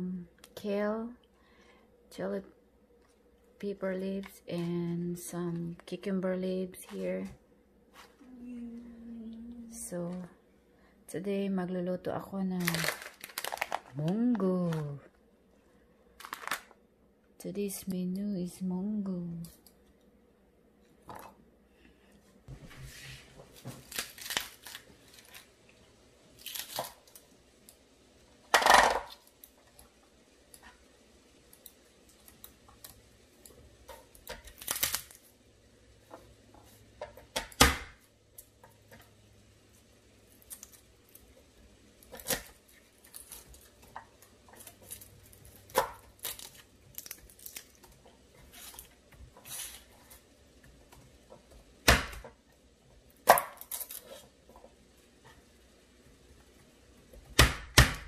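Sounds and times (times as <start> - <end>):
vegetables tearing and rustling: 12.6 - 15.0, 16.2 - 16.7, 23.5 - 27.3, 34.1 - 35.4, 40.3 - 50.3, 53.2 - 54.4.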